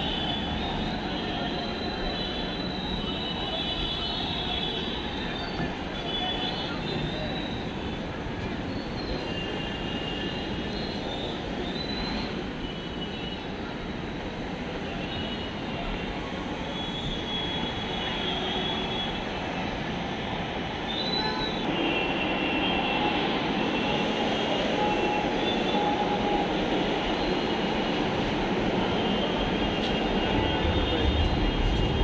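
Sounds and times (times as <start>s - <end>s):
train rumble: 23.0s - 32.0s.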